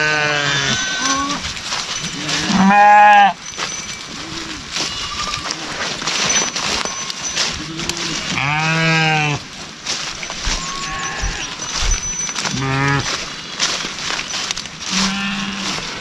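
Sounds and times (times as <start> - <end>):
livestock calling: 0.0 - 1.5, 4.1 - 9.4, 10.5 - 11.9.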